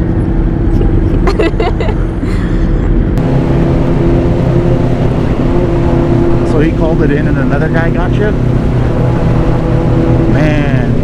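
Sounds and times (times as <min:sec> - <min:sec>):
motorcycle engine cruising: 0:03.2 - 0:11.0.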